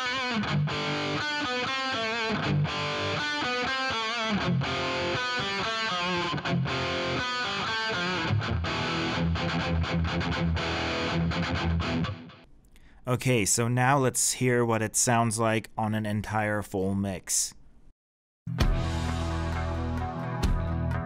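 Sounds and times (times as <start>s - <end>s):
distorted electric guitar chords: 0.0s - 12.4s, 18.5s - 21.0s.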